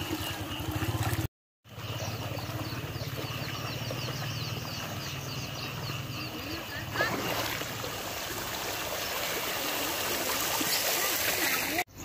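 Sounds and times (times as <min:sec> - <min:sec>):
small birds chirping: 0:00.0 - 0:07.1.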